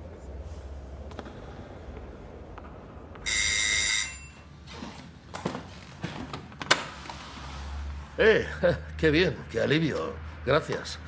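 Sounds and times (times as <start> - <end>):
electric doorbell ringing: 3.3 - 4.5.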